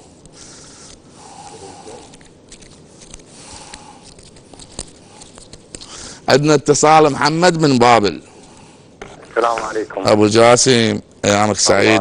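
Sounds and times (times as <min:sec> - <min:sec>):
man breathing and sniffing: 0:00.0 - 0:06.3.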